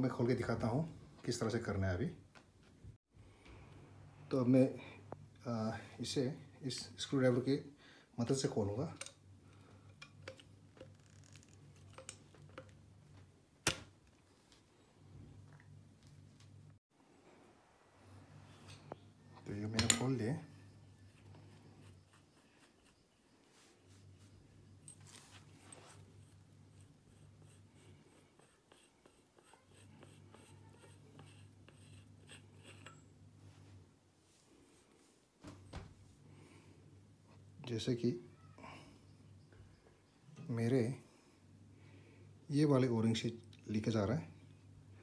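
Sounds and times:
low steady hum: 0.1 - 45.0
hands scratching metal cylinder: 25.1 - 33.1.

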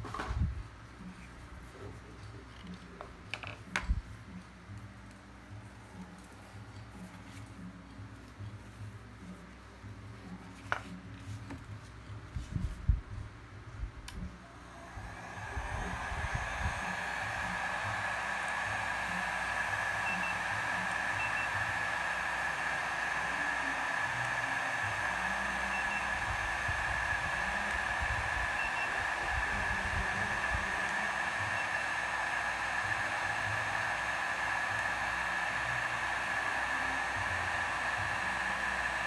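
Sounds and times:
heat gun air rush and whine: 14.4 - 39.0.

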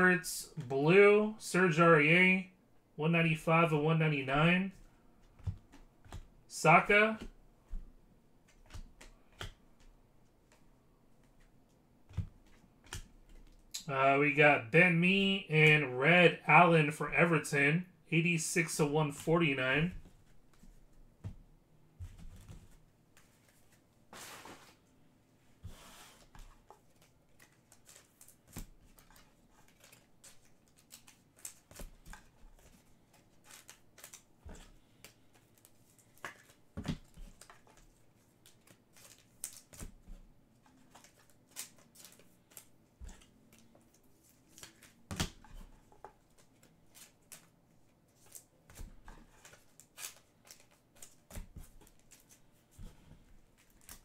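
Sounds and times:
trading cards rustling and clicking: 3.2 - 13.9, 25.7 - 54.0.

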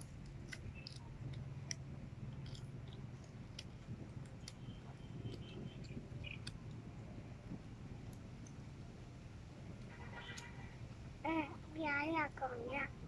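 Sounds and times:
plastic cube layers clicking: 0.0 - 6.8
low steady hum: 0.0 - 13.0.

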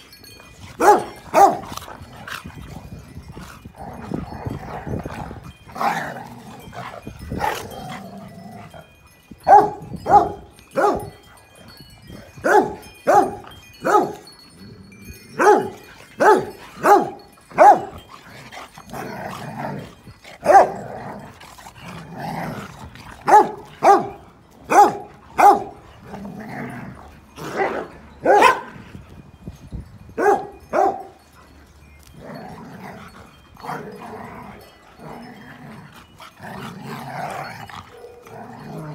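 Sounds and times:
dogs growling: 0.0 - 29.0, 31.1 - 38.9
dogs barking: 0.8 - 1.7, 9.4 - 11.2, 12.4 - 14.3, 15.4 - 18.1, 20.4 - 20.9, 23.2 - 25.8, 27.4 - 28.8, 30.2 - 31.3.

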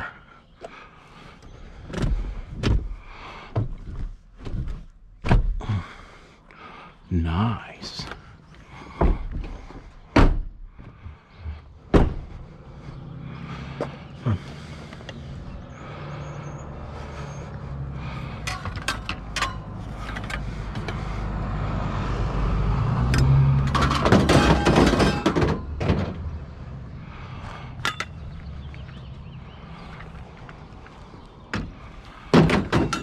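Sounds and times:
knocks and rattles: 8.8 - 12.5, 18.3 - 21.1, 23.0 - 26.5, 31.5 - 33.0
thunk: 9.0 - 9.5, 11.9 - 12.4
loud clatter: 23.6 - 26.2.

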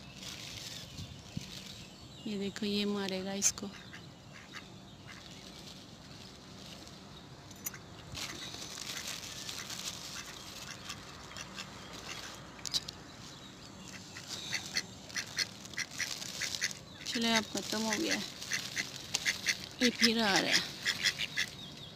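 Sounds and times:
duck calls: 10.2 - 12.3, 14.2 - 21.6.

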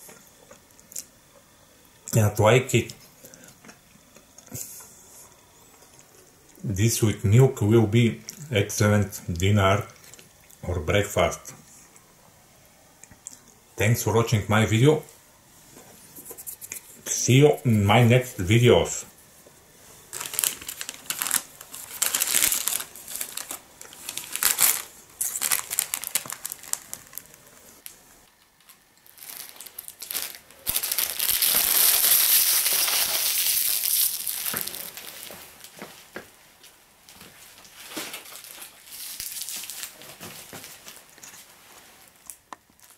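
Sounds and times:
plastic wrappers crinkling: 20.0 - 28.0, 28.6 - 36.0, 37.1 - 42.9.

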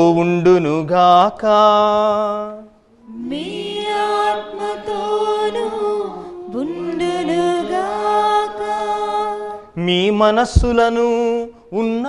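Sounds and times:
sung liturgical response: 1.7 - 11.1.

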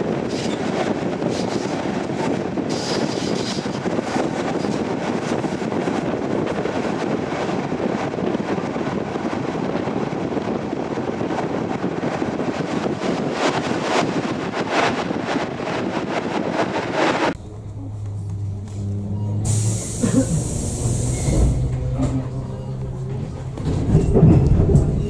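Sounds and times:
train wheels rumbling on track: 0.0 - 25.0
rushing air: 19.4 - 21.9.

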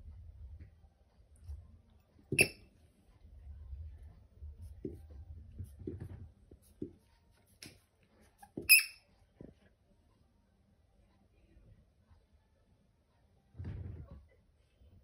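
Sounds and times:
squeaky toy squeak: 2.3 - 2.6, 8.4 - 9.1.

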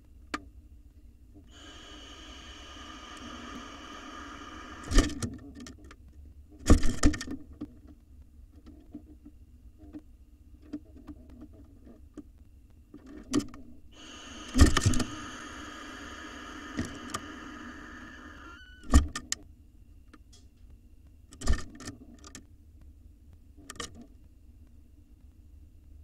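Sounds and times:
owl hissing: 1.5 - 5.2, 13.9 - 18.9.

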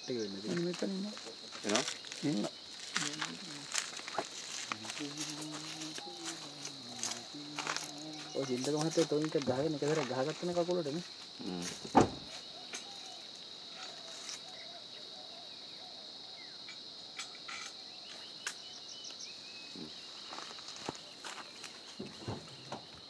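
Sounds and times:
insects droning: 0.0 - 23.0.

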